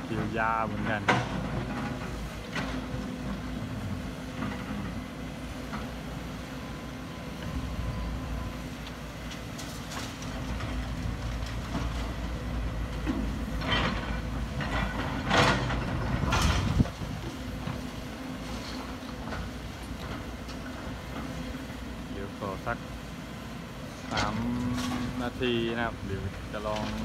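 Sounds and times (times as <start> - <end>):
diesel engines droning: 0.0 - 27.0.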